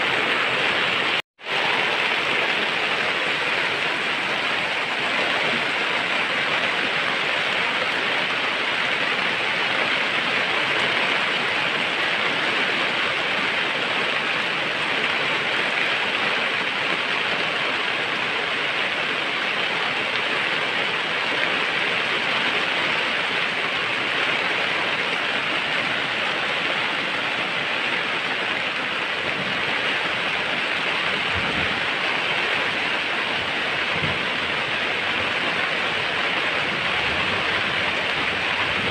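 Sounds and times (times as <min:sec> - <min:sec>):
steady rushing noise: 0:22.8 - 0:38.9.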